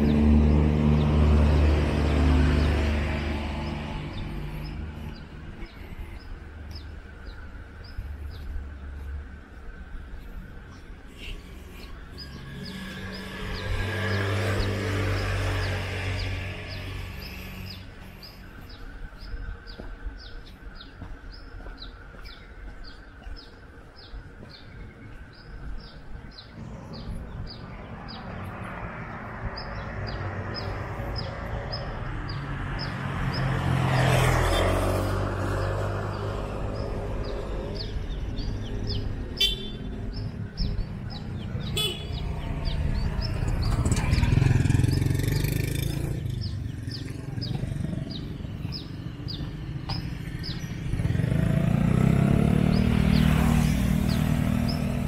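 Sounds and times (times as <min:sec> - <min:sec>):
street traffic passing: 0:00.0 - 0:55.0
car horn toots: 0:39.4 - 0:39.8, 0:41.8 - 0:42.1.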